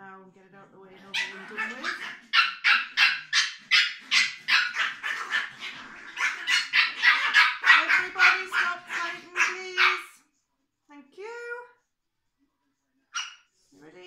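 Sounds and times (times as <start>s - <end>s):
small dog yapping: 1.1s - 10.1s.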